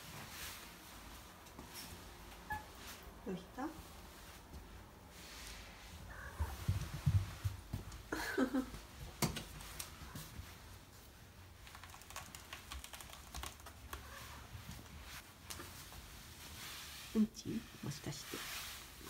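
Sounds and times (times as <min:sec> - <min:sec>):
cat paws thudding on wooden floor: 0:06.4 - 0:07.9.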